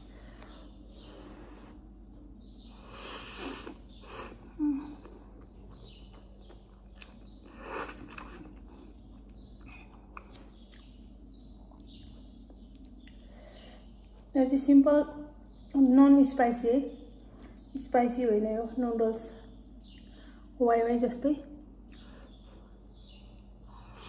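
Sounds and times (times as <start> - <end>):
slurping noodles: 3.0 - 4.4
chewing: 3.6 - 14.3.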